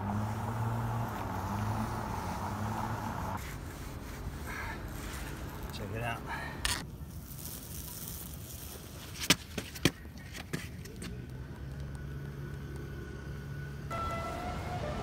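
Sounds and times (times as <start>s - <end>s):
street traffic: 0.0s - 15.0s
fabric peeling off papery rustle: 3.4s - 9.8s.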